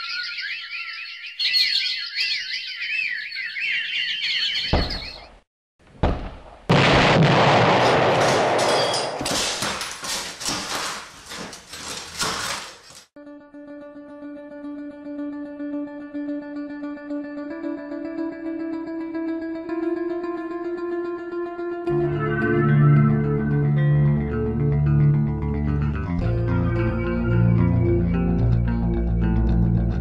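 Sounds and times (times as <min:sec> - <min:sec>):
birds chirping: 0:00.0 - 0:05.4
heavy thumps: 0:04.7 - 0:07.1
loud crash with crackling debris: 0:06.0 - 0:11.5
plucked guitar: 0:13.2 - 0:30.0.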